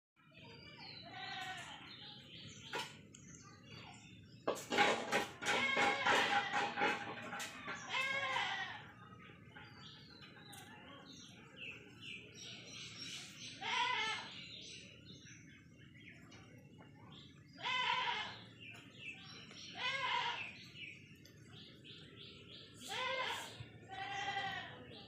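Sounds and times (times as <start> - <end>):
goat bleating: 1.1 - 1.8, 5.1 - 8.9, 13.6 - 14.4, 17.6 - 18.4, 19.7 - 20.5, 22.8 - 24.8.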